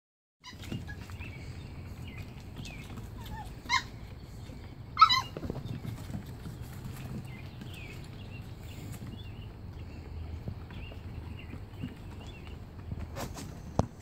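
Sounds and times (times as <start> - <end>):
puppy squeaks: 0.4 - 1.2, 3.1 - 4.1, 5.0 - 5.6
puppies yelping: 0.4 - 9.1.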